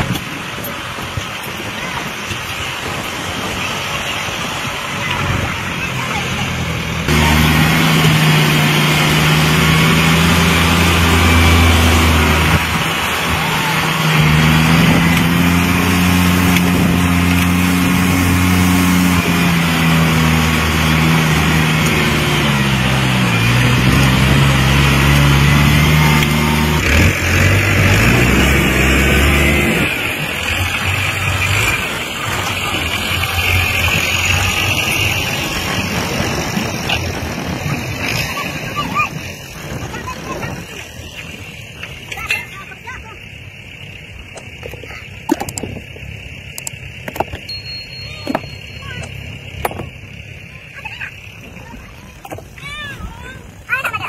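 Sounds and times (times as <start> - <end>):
tractor engine running: 0.0 - 54.0.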